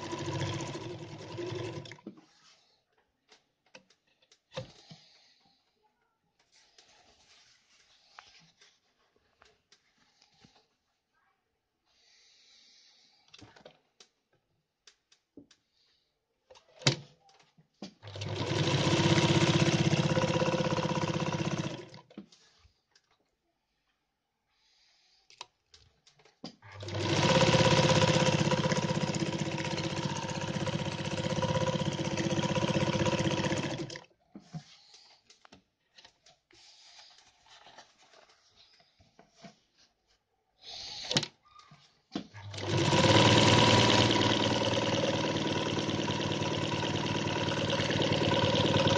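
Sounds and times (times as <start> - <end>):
sewing machine stitching: 0.0 - 2.1, 18.0 - 22.1, 26.6 - 34.1, 42.2 - 48.9.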